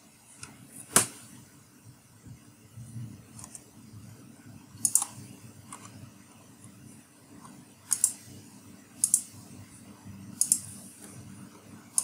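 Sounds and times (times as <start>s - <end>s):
low steady hum: 0.0s - 12.0s
computer mouse double clicks: 7.9s - 8.2s, 9.0s - 9.3s, 10.4s - 10.6s.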